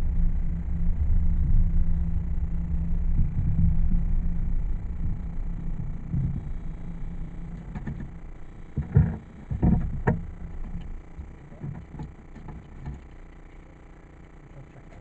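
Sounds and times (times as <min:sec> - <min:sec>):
low rumble: 0:00.0 - 0:15.0
knocks and clicks in van cabin: 0:07.6 - 0:13.1.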